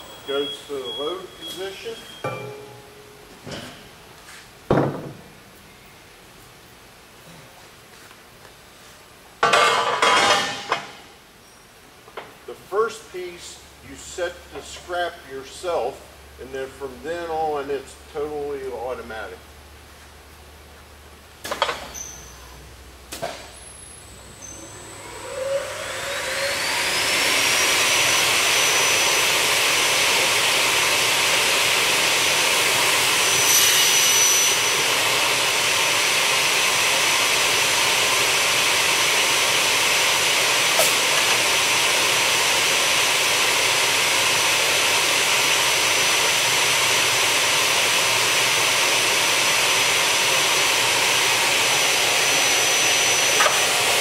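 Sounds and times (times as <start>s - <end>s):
saw blade motor whine: 24.4s - 43.4s, 48.6s - 54.0s
loud rush of air: 33.9s - 54.0s.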